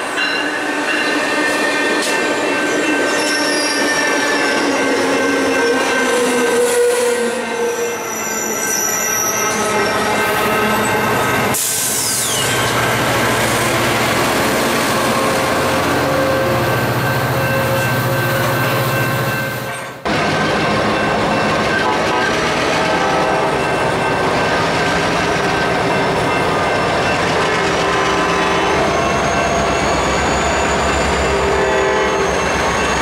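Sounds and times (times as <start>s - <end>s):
diesel locomotive engine drone: 0.0s - 33.0s
train wheels squealing: 0.1s - 19.7s, 28.0s - 33.0s.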